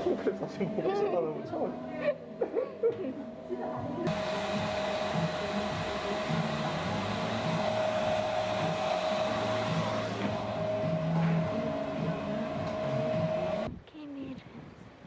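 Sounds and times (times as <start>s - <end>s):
hair dryer blowing: 4.0s - 13.7s.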